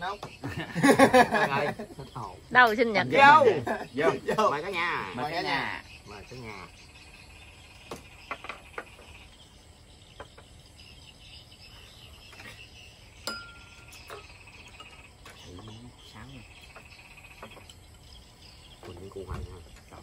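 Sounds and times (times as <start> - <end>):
crickets chirping: 0.0 - 20.0
glasses and dishes clinking: 13.2 - 15.5.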